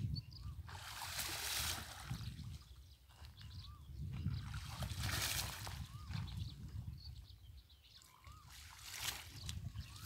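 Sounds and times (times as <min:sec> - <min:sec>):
water sloshing and splashing: 0:00.7 - 0:03.5, 0:04.1 - 0:06.3, 0:08.3 - 0:10.0.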